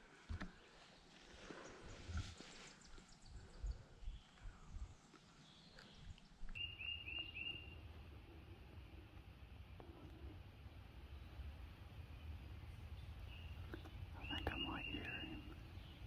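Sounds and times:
bird chirping: 0.4 - 8.0, 11.0 - 16.0.

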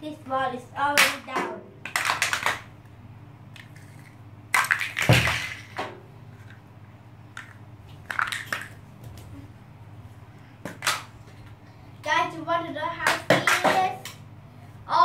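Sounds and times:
plastic blocks clattering on tile floor: 1.8 - 2.6, 3.5 - 6.6, 7.3 - 8.8.

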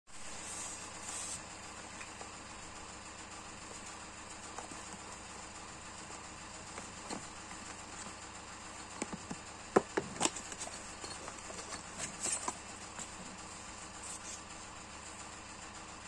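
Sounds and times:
cardboard box flap clicks and scrapes: 9.0 - 13.2.

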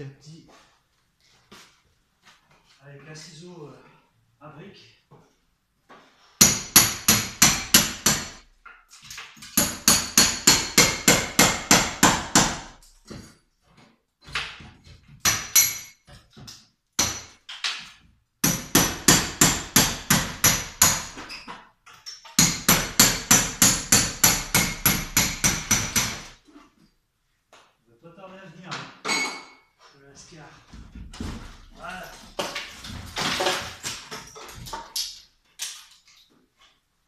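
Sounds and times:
hammer striking metal chisel: 6.4 - 8.4, 9.4 - 13.3, 15.2 - 17.4, 18.4 - 21.2, 22.0 - 26.3.

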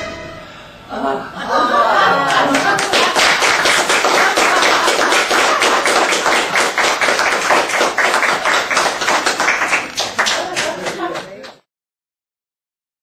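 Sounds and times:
hands clapping: 2.2 - 11.6.

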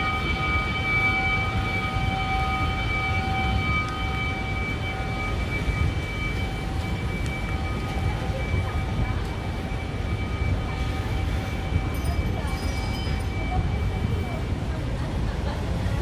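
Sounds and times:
low rumble of street traffic: 0.0 - 16.0.

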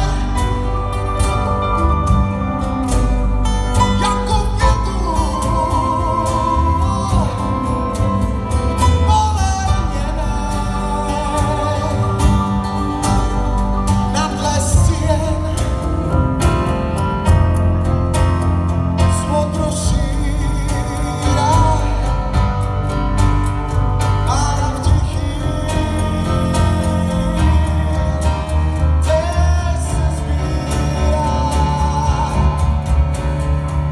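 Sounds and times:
man singing into microphone: 0.0 - 1.0, 3.8 - 12.9, 14.0 - 16.3, 19.0 - 22.5, 24.2 - 33.2
acoustic guitar: 0.0 - 33.9
cajon beat: 0.0 - 33.9
electric guitar: 0.0 - 33.9
keyboard: 0.0 - 33.9.

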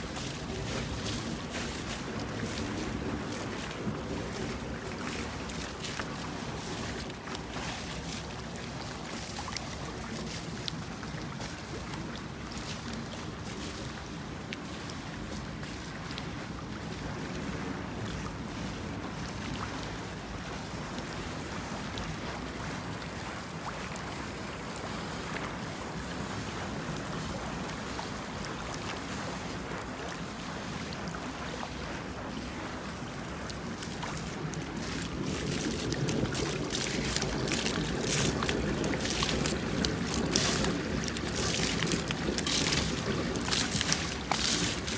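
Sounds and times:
water churning and sloshing: 0.0 - 44.9
water spilling into gutter: 34.0 - 44.9.

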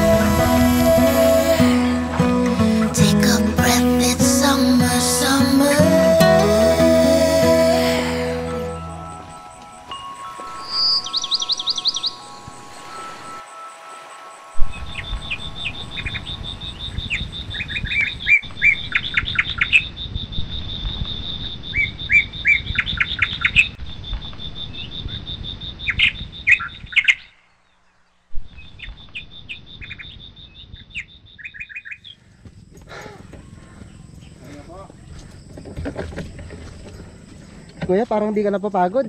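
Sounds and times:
low rumble: 0.0 - 4.0
high-pitched buzz: 0.0 - 18.9
birds chirping: 0.0 - 38.4.

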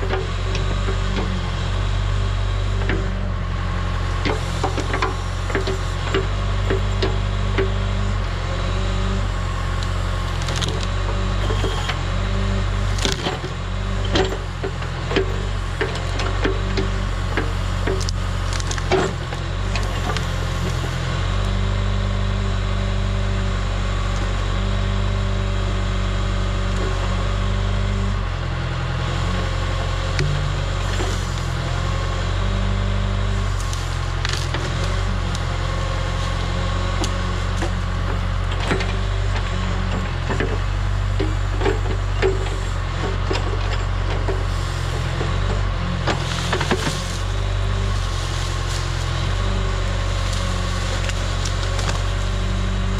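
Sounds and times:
diesel engine running: 0.0 - 52.9
branches snapping and cracking: 9.7 - 21.6, 29.1 - 52.9.

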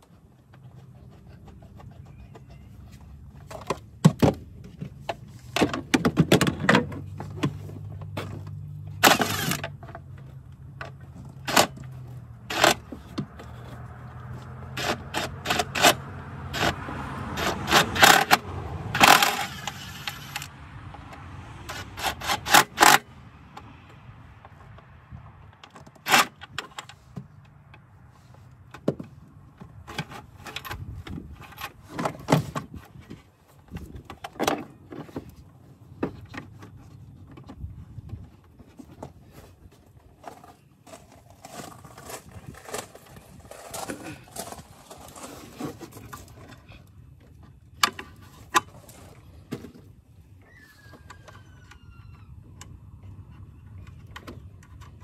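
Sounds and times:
engine parts clicking and clattering: 0.0 - 55.0.

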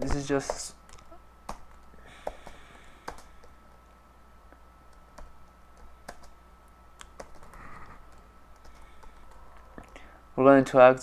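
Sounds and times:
computer keyboard typing: 0.0 - 3.6, 4.9 - 6.4, 7.0 - 9.4.

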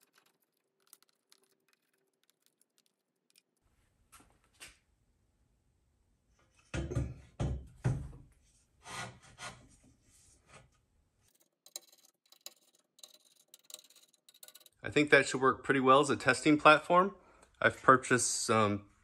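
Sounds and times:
metal parts clunking and scraping: 11.3 - 14.8.

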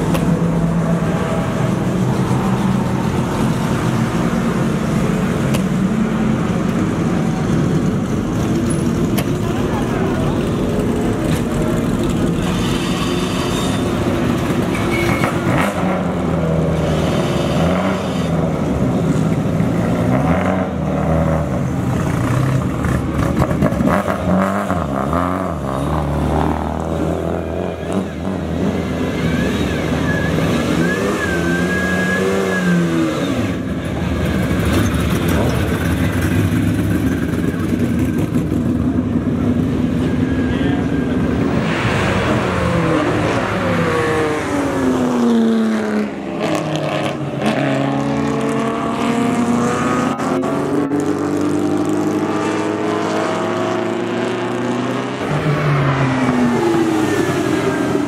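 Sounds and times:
engine revving: 39.8 - 58.0.

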